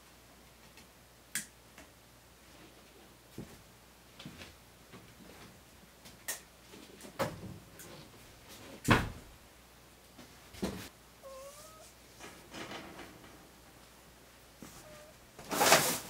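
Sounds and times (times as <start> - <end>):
indoor knocks and clunks: 8.8 - 9.3
dog whimpering: 11.2 - 11.9, 14.7 - 15.2.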